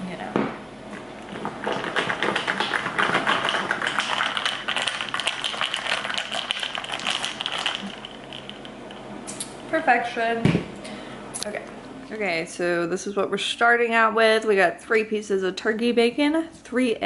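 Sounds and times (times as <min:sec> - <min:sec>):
ice cubes clinking in glass jar: 0:03.0 - 0:08.7.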